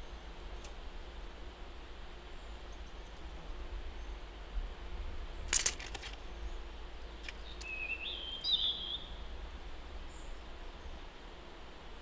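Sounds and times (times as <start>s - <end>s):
low outdoor rumble: 0.0s - 12.0s
songbird call: 6.2s - 9.2s.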